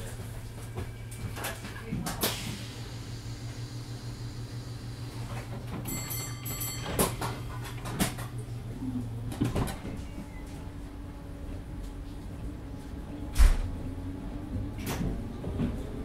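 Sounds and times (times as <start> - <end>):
train clunks: 0.0 - 3.0, 5.2 - 8.6, 9.2 - 10.5
train equipment humming: 0.0 - 16.0
door warning tone: 5.7 - 7.8
sliding doors thudding shut: 13.3 - 13.8.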